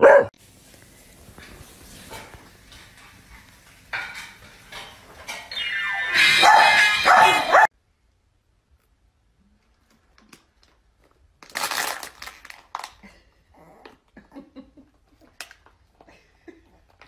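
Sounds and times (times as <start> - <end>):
plastic bottle crinkling: 10.1 - 13.0.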